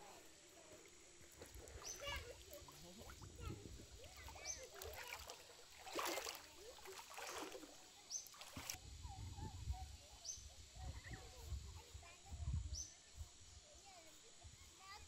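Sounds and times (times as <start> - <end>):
birds calling: 1.7 - 2.4
rustling splashes of fish: 4.2 - 8.8.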